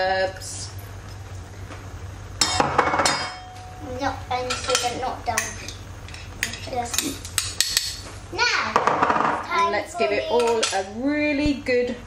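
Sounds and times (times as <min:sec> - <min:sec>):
metal spoons clinking on a pan: 0:02.4 - 0:03.8, 0:04.4 - 0:08.0, 0:10.4 - 0:10.9.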